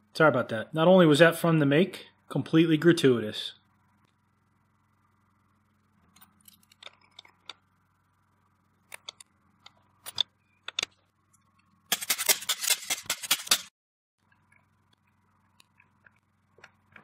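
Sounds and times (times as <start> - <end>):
wire stripper clicking and scraping: 11.9 - 13.7.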